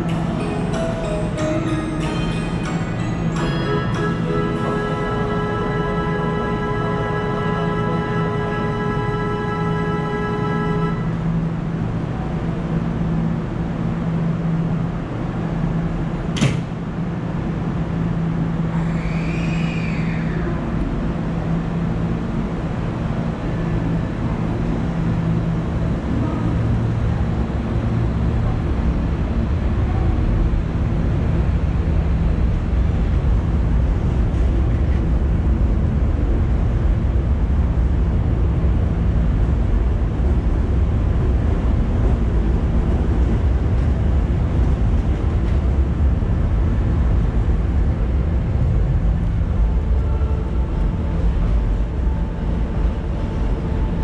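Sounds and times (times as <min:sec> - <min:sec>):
electric train humming: 0:00.0 - 0:54.0
low rumble: 0:20.2 - 0:54.0.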